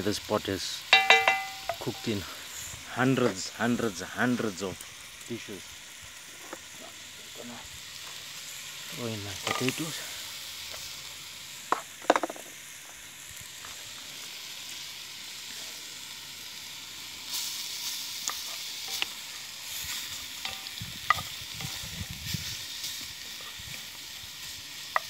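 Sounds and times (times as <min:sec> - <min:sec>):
stew sizzling in a pot: 0:00.0 - 0:25.0.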